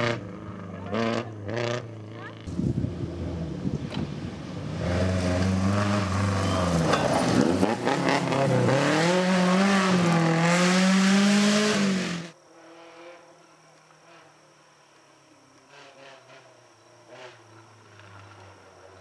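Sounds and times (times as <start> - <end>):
rally car engine at high revs: 0.0 - 13.4.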